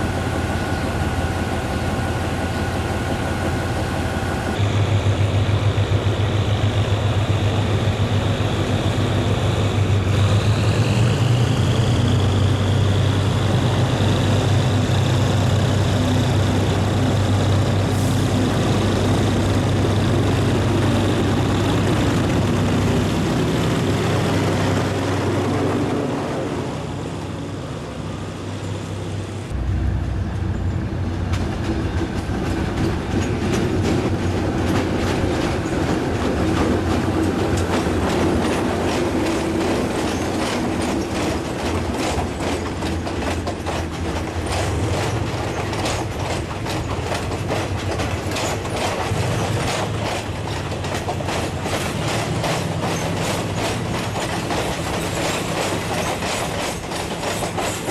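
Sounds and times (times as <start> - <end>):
locomotive engine drone: 0.0 - 57.9
wheels clicking over rail joints: 30.3 - 57.9.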